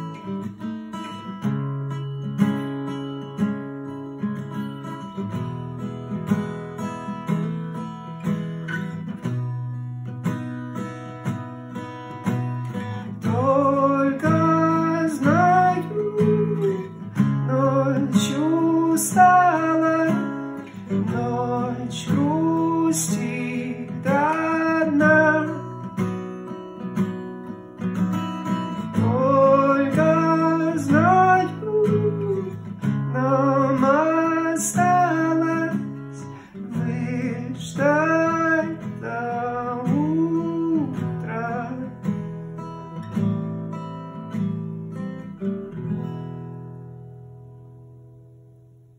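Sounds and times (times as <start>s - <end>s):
acoustic guitar playing chords: 0.0s - 48.9s
man singing: 13.0s - 26.0s, 28.7s - 42.2s.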